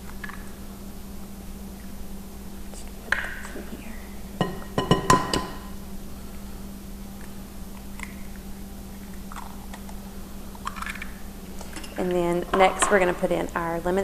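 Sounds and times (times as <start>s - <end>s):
steady low hum: 0.0s - 14.0s
eggs clinking on glass bowl: 4.4s - 5.6s.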